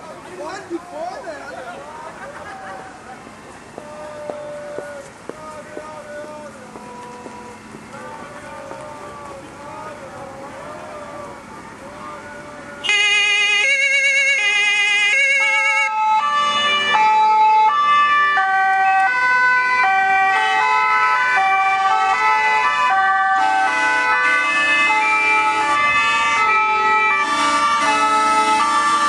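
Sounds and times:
two-tone emergency sirens: 10.4 - 29.0
fast warbling siren: 12.8 - 29.0.

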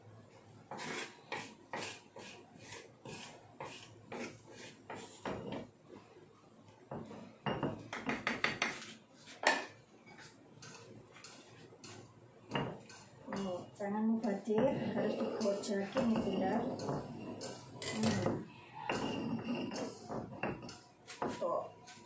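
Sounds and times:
utensils scraping metal bowls: 10.6 - 22.0.

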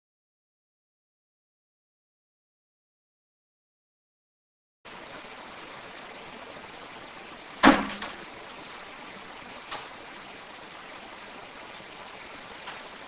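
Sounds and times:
room recording hiss: 4.9 - 13.0
loud sudden knock: 7.6 - 8.2.

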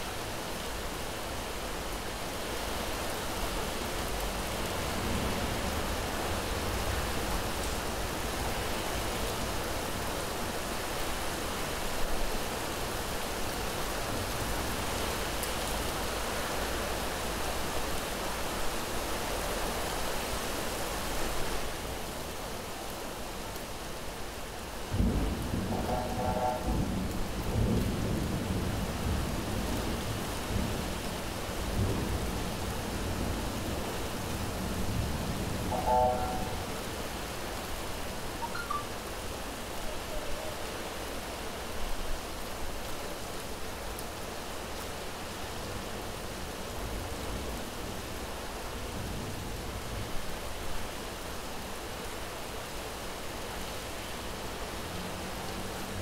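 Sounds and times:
heavy rain: 0.0 - 56.0
deep rolling thunder: 24.9 - 29.8.

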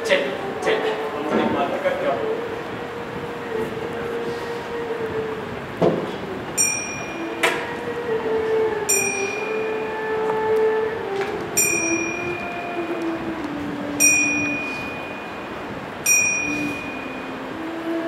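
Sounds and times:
low drone: 0.0 - 18.0
bell ringing: 6.6 - 7.7, 8.9 - 9.9, 11.6 - 12.9, 14.0 - 17.4.

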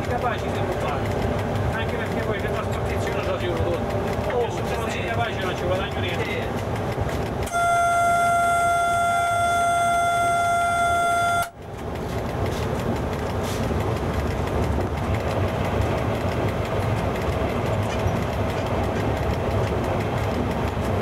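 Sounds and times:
locomotive rumbling on track: 0.0 - 21.0
locomotive horn: 7.5 - 11.6.

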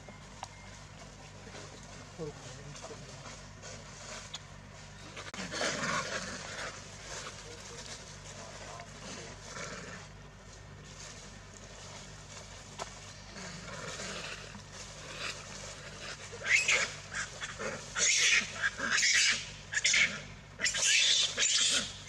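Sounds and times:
macaques squealing calls: 15.0 - 22.0.

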